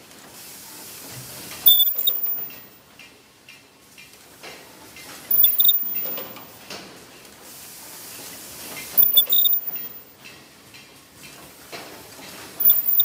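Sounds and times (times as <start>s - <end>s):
burst of clatter and hiss: 0.3s - 2.7s, 5.1s - 10.0s, 11.7s - 13.0s
machine mechanical clatter: 1.6s - 2.7s, 5.0s - 7.0s, 8.7s - 13.0s.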